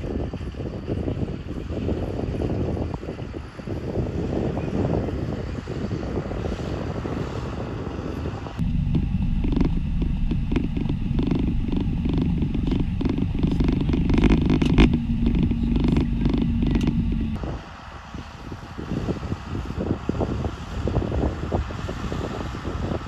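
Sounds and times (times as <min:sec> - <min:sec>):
wind buffeting microphone: 0:00.0 - 0:23.0
diesel engine running: 0:05.3 - 0:23.0
distant tractor: 0:05.4 - 0:19.5
cab knocking and rattling: 0:08.6 - 0:17.4.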